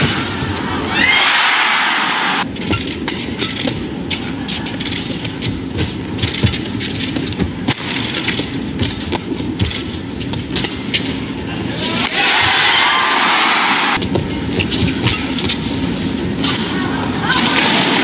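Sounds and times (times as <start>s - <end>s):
crowd noise: 0.0s - 2.5s, 11.2s - 14.6s, 16.3s - 18.0s
racket striking shuttlecock: 5.2s - 11.2s.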